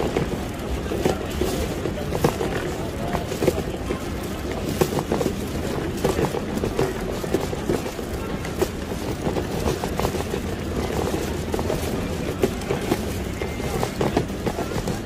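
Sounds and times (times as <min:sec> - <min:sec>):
faint music: 0:00.0 - 0:15.0
low rumble of traffic: 0:00.0 - 0:15.0.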